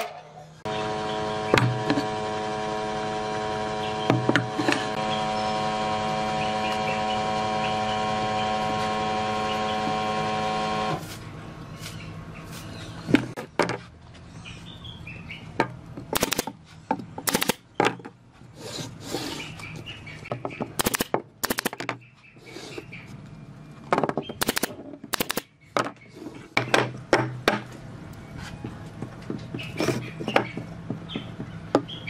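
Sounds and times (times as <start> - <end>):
air compressor motor hum: 0.6 - 11.1
sharp cracks: 20.8 - 21.9, 24.4 - 25.5.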